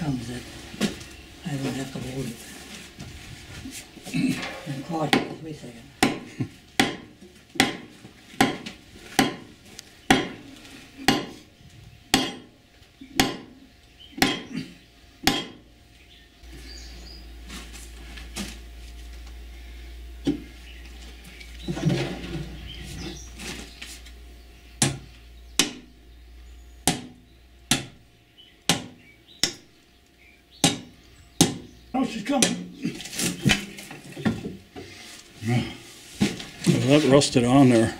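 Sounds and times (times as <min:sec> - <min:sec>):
low hum: 0:00.0 - 0:37.9
hammer striking iron: 0:04.4 - 0:05.4, 0:06.0 - 0:09.5, 0:10.1 - 0:10.4, 0:11.0 - 0:11.4, 0:12.1 - 0:12.5, 0:13.1 - 0:13.5, 0:14.2 - 0:14.5, 0:15.2 - 0:15.6, 0:24.8 - 0:25.9, 0:26.8 - 0:28.0, 0:28.7 - 0:29.6, 0:30.6 - 0:31.7, 0:32.4 - 0:32.7.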